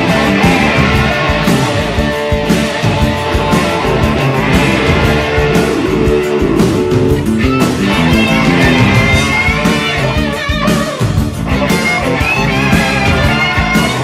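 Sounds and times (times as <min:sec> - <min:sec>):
rock music with guitar: 0:00.0 - 0:14.0.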